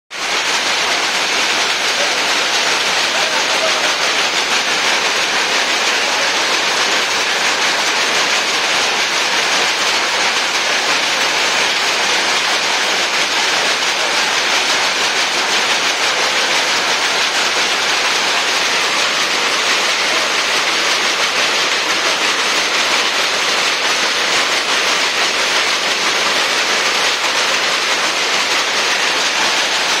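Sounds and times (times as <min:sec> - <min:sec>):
power looms clattering: 0:00.1 - 0:30.0.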